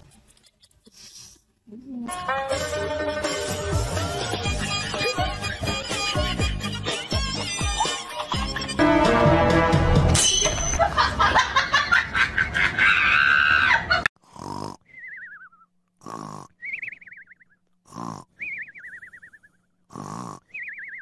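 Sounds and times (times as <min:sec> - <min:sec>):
background music: 0:02.1 - 0:10.8
cat snoring: 0:14.3 - 0:14.8, 0:16.0 - 0:16.5, 0:17.9 - 0:18.2, 0:19.9 - 0:20.4.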